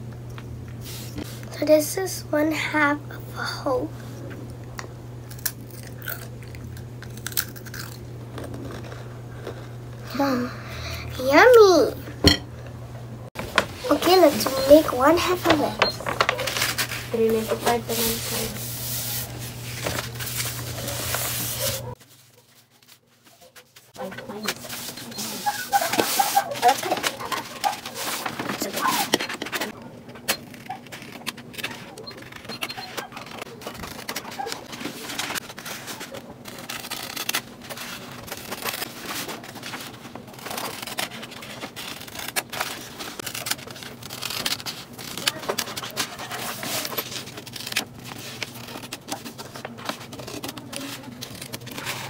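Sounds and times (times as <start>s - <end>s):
steady low hum: 0.0s - 22.1s
hands rubbing over paper: 13.4s - 29.0s
paper rustling: 13.4s - 52.0s
scissors cutting paper: 13.5s - 22.1s, 22.7s - 52.0s.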